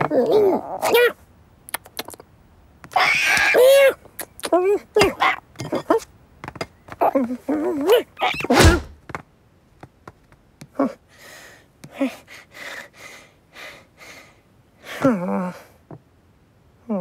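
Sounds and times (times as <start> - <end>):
cartoon cat mewing: 0.1 - 1.2
heavy thud: 8.5 - 9.0.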